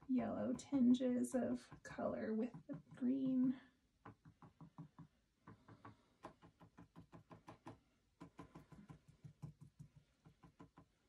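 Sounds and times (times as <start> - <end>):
paintbrush tapping on canvas: 4.0 - 11.0.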